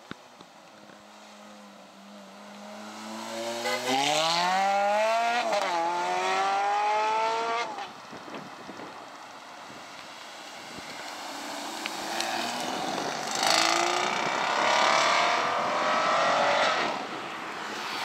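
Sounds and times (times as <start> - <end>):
car engine revving: 2.6 - 7.8, 11.4 - 17.0.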